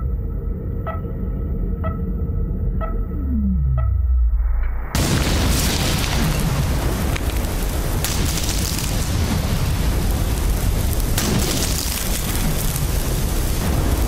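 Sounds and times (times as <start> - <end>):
hiss of scattering fragments: 5.0 - 14.0
ice block exploding: 5.0 - 14.0.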